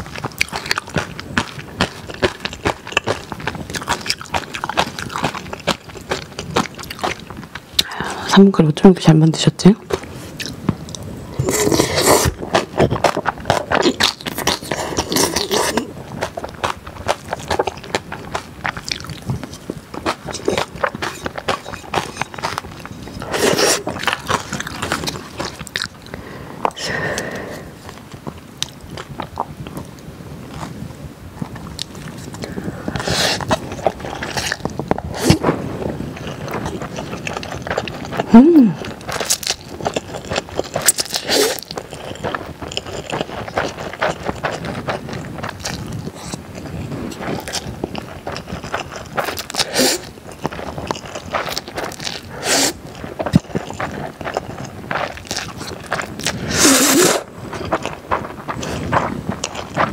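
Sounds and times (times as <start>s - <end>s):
chewing and lip smacks: 0.0s - 7.9s, 9.8s - 30.8s, 31.4s - 59.9s
slurping noodles: 11.3s - 16.4s, 18.9s - 27.8s, 32.2s - 59.9s.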